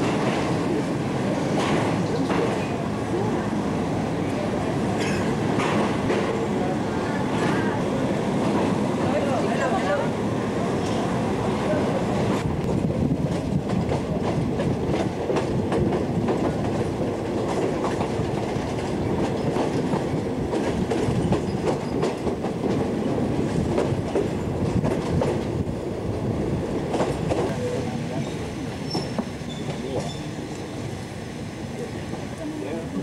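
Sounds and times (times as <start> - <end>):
train wheels clicking and clacking: 0.0 - 2.9, 5.0 - 6.5, 12.2 - 25.7, 26.8 - 30.9
train rumble: 0.0 - 33.0.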